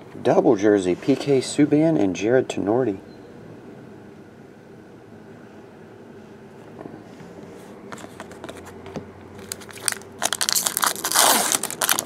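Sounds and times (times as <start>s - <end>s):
foil wrapper crinkling and tearing: 9.4s - 12.0s.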